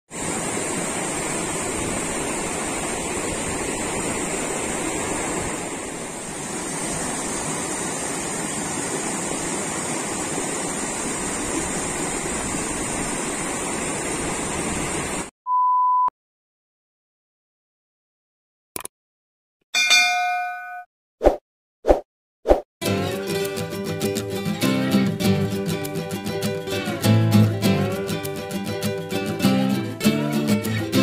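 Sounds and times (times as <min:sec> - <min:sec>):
stream rushing over stones: 0:00.1 - 0:15.3.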